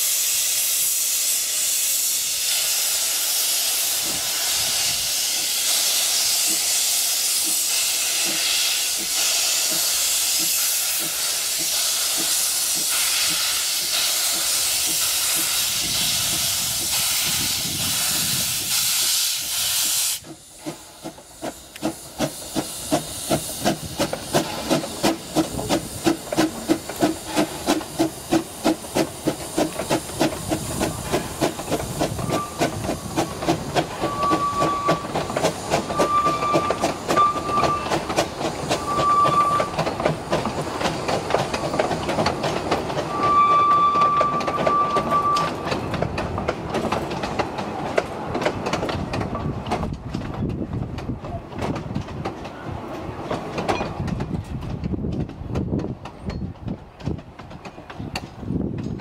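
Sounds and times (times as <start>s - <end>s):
steam hissing: 0.0s - 45.9s
steam locomotive chuffing: 0.0s - 59.0s
steam whistle toots: 32.0s - 32.8s, 34.0s - 38.1s, 38.7s - 39.9s, 43.1s - 45.7s.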